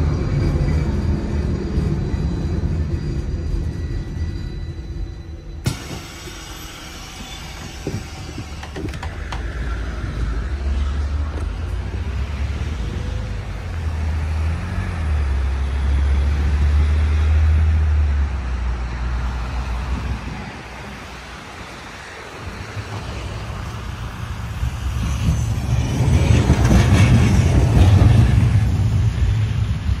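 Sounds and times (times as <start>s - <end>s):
street traffic: 0.0s - 30.0s
tram passing: 0.0s - 30.0s
wind buffeting microphone: 7.1s - 13.7s, 19.4s - 30.0s.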